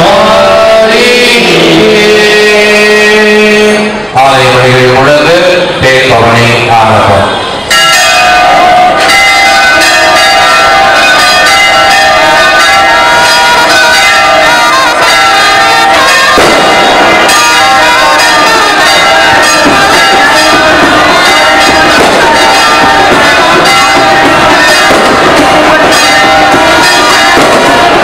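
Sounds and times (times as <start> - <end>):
church bells pealing: 7.6 - 28.0.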